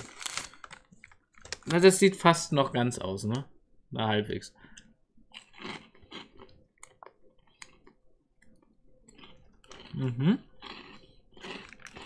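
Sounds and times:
chewing crunchy snack: 0:05.3 - 0:12.0.

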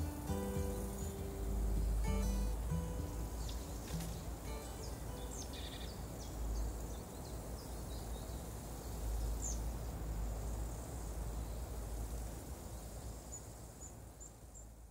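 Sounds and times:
bird chirps: 0:00.0 - 0:09.7
low rumble with faint hiss: 0:00.0 - 0:14.9.

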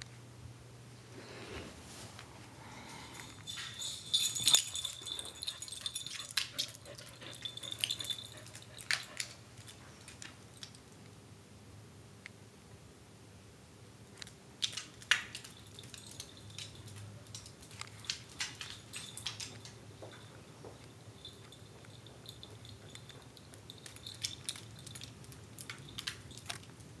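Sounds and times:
dog claws clicking on wooden floor: 0:03.4 - 0:10.8, 0:14.2 - 0:26.9.

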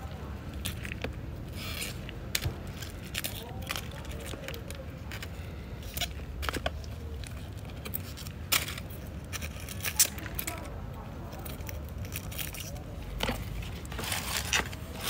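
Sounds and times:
dry leaves crackling and snapping: 0:00.0 - 0:15.0.

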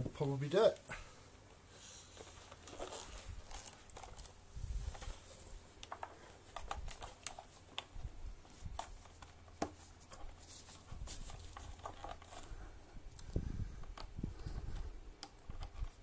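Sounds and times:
screwdriver and plastic parts clicking: 0:05.8 - 0:08.0, 0:13.1 - 0:16.0.

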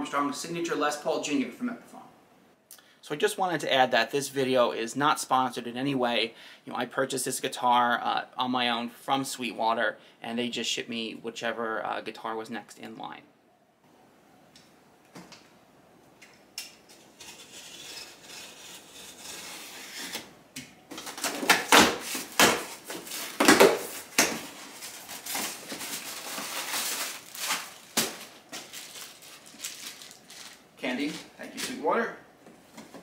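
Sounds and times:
cardboard scrapes and crinkles: 0:17.1 - 0:20.3.

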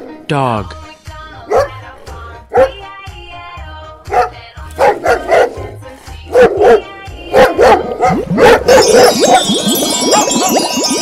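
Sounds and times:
dog barking: 0:01.5 - 0:01.8, 0:02.5 - 0:02.8, 0:04.1 - 0:09.4.

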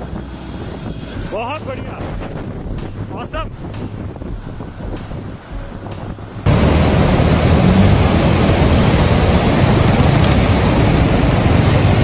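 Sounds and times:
mountain stream rushing: 0:06.4 - 0:12.0.

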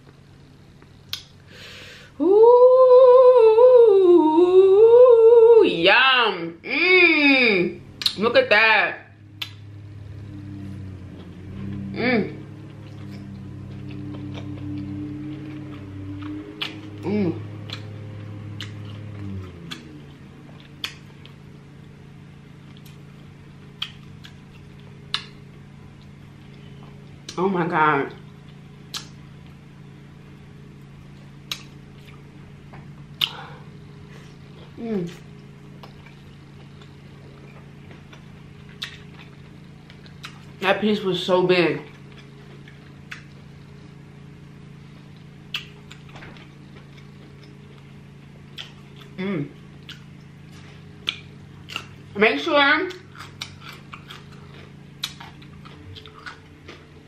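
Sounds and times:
low background hum: 0:00.0 - 0:57.0
wet chewing clicks and smacks: 0:23.8 - 0:25.4, 0:35.8 - 0:40.5, 0:41.9 - 0:43.4, 0:45.5 - 0:47.8, 0:48.5 - 0:49.2, 0:49.8 - 0:50.3, 0:51.0 - 0:52.0, 0:52.9 - 0:57.0
wet mouth clicks eating: 0:45.5 - 0:46.1, 0:55.0 - 0:56.4.

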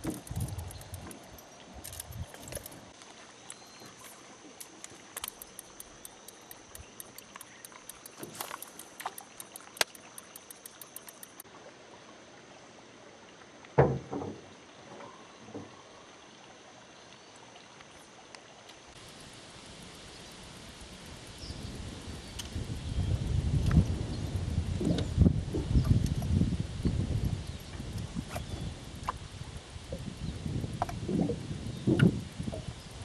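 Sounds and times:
small scattered clicks: 0:00.0 - 0:03.6, 0:04.6 - 0:11.4, 0:22.3 - 0:22.7
faint water trickle: 0:00.0 - 0:13.8, 0:14.5 - 0:33.0.

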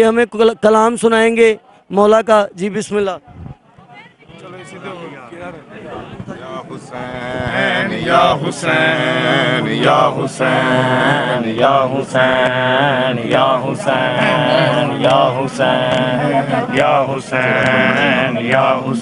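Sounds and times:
man chanting a lament: 0:06.4 - 0:19.0
hand slap keeping time: 0:13.3 - 0:16.1, 0:17.3 - 0:18.6.

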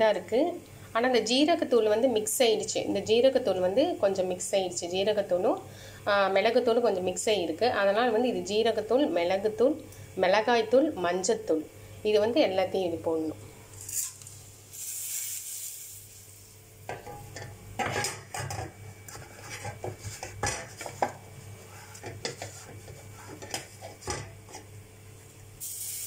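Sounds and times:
spices sizzling in hot oil: 0:13.7 - 0:17.4, 0:25.6 - 0:26.0.

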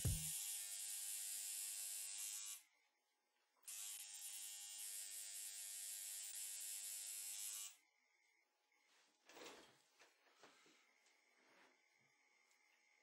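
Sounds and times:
tattoo machine buzzing: 0:00.0 - 0:02.6, 0:03.7 - 0:07.8.

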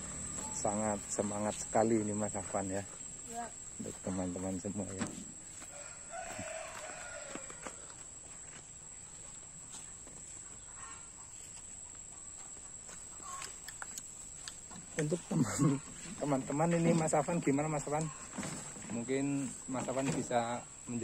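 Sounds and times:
footsteps on dirt path: 0:00.0 - 0:21.0
wheelbarrow knocking: 0:03.9 - 0:05.4, 0:14.7 - 0:20.7.

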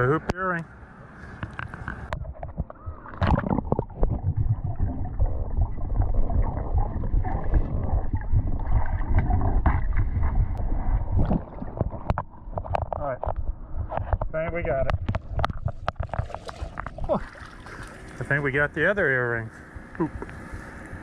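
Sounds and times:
muffled water gurgling and sloshing: 0:00.0 - 0:21.0
heavy underwater rumble: 0:02.0 - 0:18.6.

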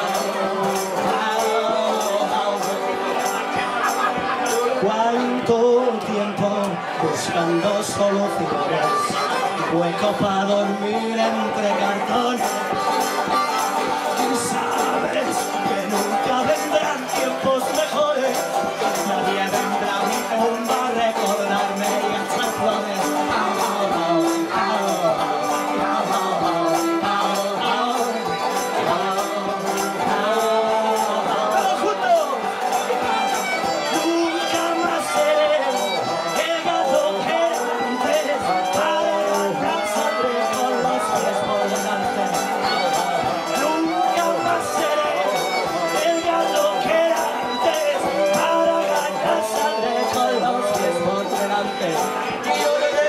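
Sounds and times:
banjo: 0:00.0 - 0:53.0
harmonica: 0:00.0 - 0:53.0
high percussive beat: 0:00.0 - 0:53.0
live band playing: 0:00.0 - 0:53.0
person singing: 0:00.0 - 0:53.0.

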